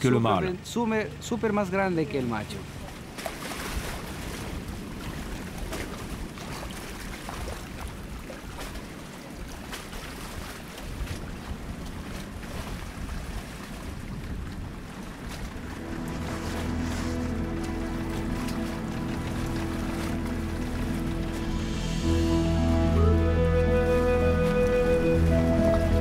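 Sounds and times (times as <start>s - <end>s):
wind rumbling on microphone: 2.8s - 26.0s
music: 15.7s - 26.0s.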